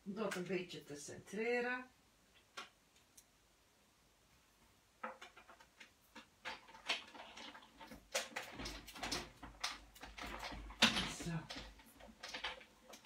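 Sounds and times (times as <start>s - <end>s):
metal plates clicking and knocking: 5.0s - 13.0s.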